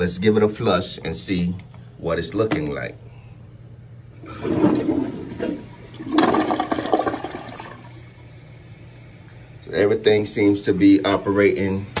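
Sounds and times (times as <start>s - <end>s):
toilet flushing: 4.2s - 12.0s.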